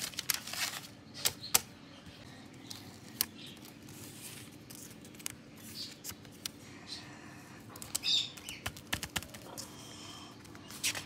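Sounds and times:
paper rustling: 0.0s - 1.4s.

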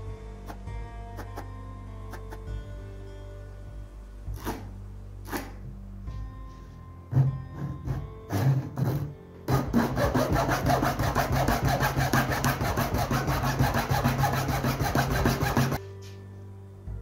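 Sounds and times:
hacksaw rasping: 1.2s - 1.5s, 2.1s - 2.5s, 4.4s - 5.6s, 7.1s - 15.8s.

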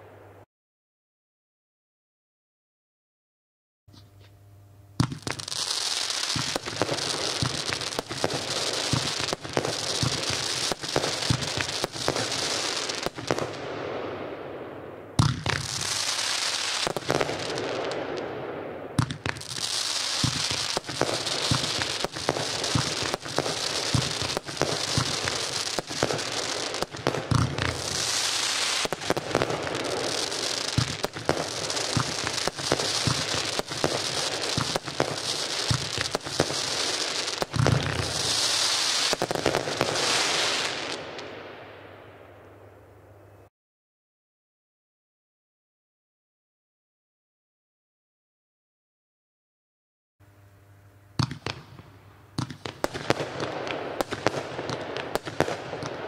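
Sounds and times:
firework pops and bangs: 5.0s - 13.6s, 15.2s - 18.3s, 19.0s - 41.3s, 51.2s - 56.0s
firework crackle: 5.0s - 14.4s, 15.2s - 42.2s, 51.2s - 56.0s.

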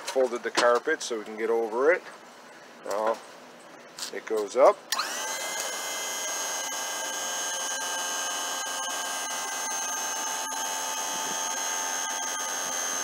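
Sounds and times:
hydraulic pump motor whining: 4.9s - 13.0s.

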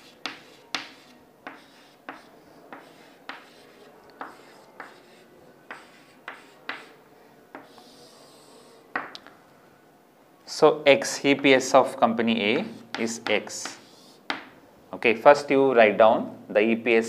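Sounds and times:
chalk strokes on chalkboard: 0.0s - 9.1s, 12.6s - 14.5s.

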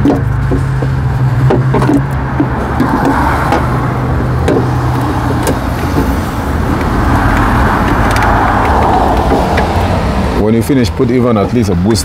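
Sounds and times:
hands tapping plastic parts: 0.0s - 3.7s
engine running: 0.0s - 10.4s.

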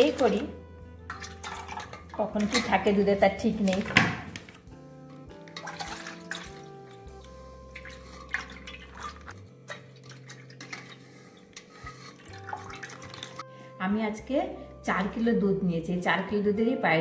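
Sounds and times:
soft background music: 0.0s - 17.0s
milk pouring through strainer: 1.1s - 2.8s, 5.4s - 13.4s
small splashes and clicks: 1.1s - 2.8s, 5.3s - 13.4s.

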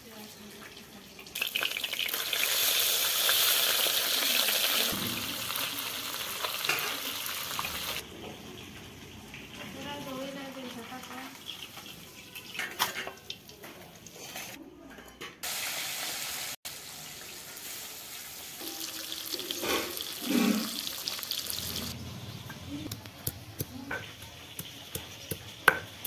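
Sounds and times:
fish sizzling in hot oil: 0.1s - 8.0s, 15.4s - 22.0s
spatula scraping pan: 14.1s - 14.6s.

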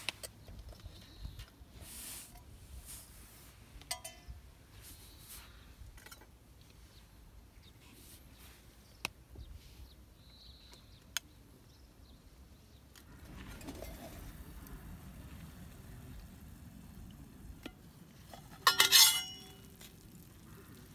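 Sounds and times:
metal spoon clinking steel bowl: 3.9s - 4.3s, 18.6s - 19.7s.

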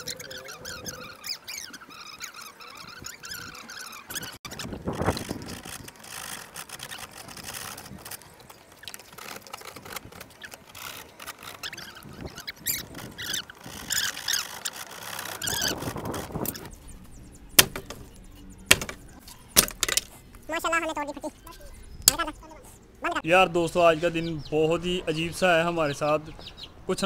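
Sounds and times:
high squeaks: 0.0s - 22.8s
scraping and rubbing wood: 4.0s - 20.8s
sharp knocks: 17.6s - 20.2s.

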